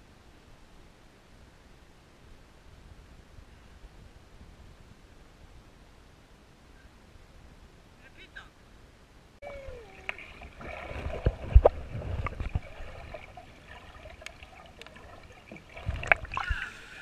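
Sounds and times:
underwater gurgling and sloshing: 9.4s - 17.0s
low thumps of water: 9.9s - 16.8s.

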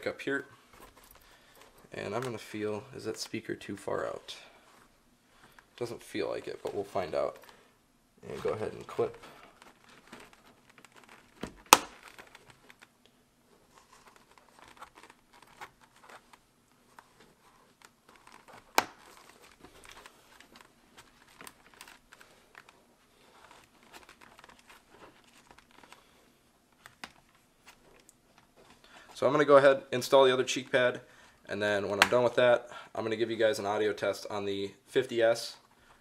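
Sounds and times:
fabric and foam rustling: 3.9s - 29.6s.

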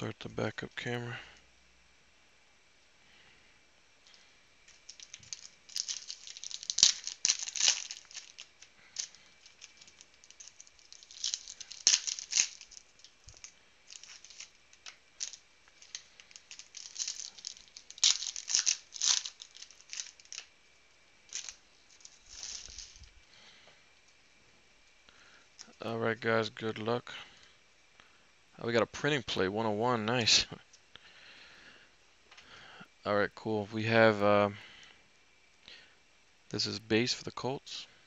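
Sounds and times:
foil wrappers crinkling and tearing: 4.1s - 20.6s, 21.2s - 23.5s.

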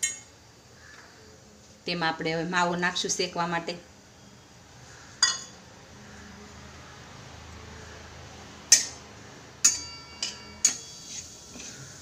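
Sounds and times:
metal spatula clinking on bowl: 5.2s - 5.5s, 9.6s - 10.9s.

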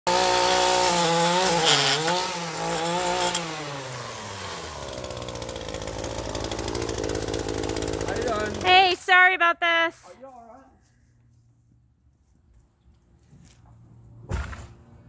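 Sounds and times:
small gas engine running: 0.1s - 9.0s.

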